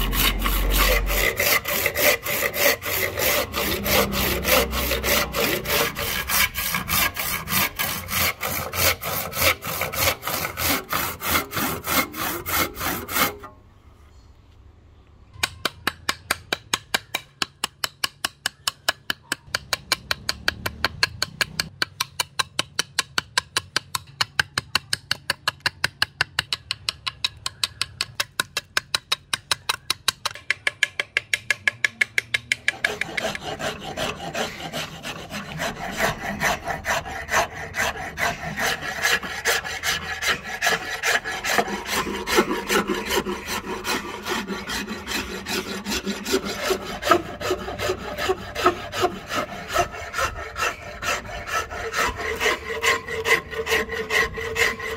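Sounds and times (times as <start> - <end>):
handsaw cutting wood: 0.0 - 13.5, 32.6 - 54.9.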